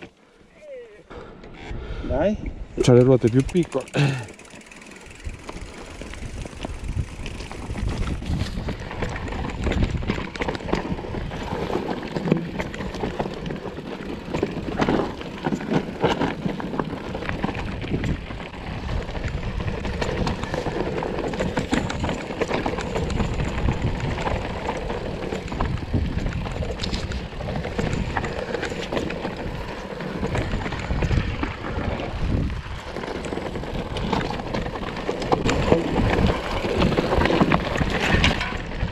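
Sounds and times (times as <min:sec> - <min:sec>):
bike rattling: 0:02.6 - 0:38.9
tyres crunching over stones: 0:19.6 - 0:38.9.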